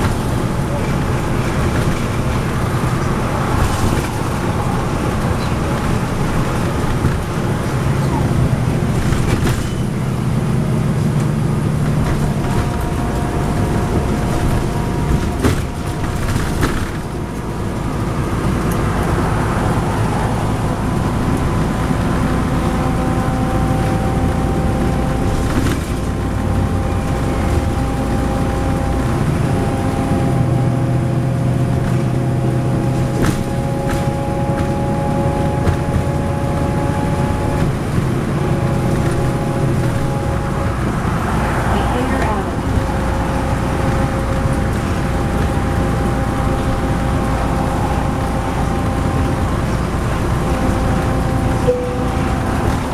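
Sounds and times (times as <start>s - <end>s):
bus diesel engine running: 0.0s - 52.9s
tyre and road noise: 0.0s - 52.9s
steady whine: 38.3s - 52.9s.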